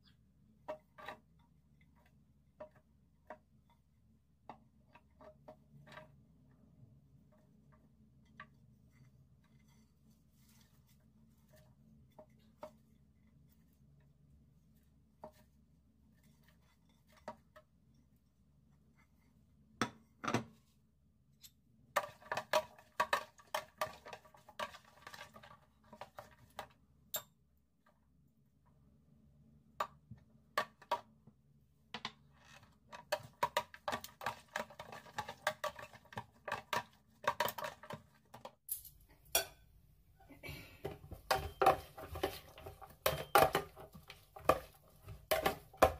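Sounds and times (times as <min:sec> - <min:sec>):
spoon clinking and scraping bowl: 0:33.0 - 0:38.0, 0:40.9 - 0:45.9.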